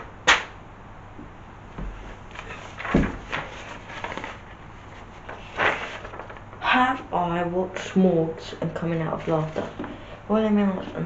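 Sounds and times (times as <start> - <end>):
paper rustling and flapping: 2.3 - 6.6, 8.9 - 10.0.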